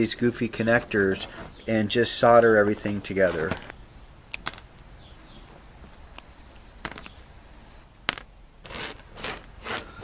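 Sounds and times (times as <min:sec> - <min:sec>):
wires rustling: 0:00.0 - 0:10.0.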